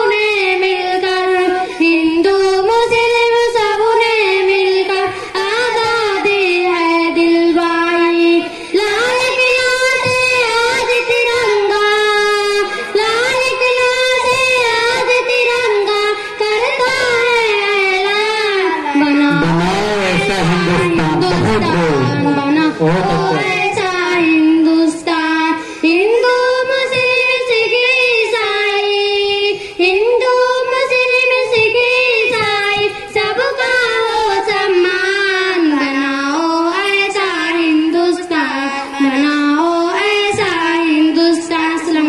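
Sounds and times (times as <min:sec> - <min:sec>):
girls singing over a pa: 0:00.0 - 0:42.0.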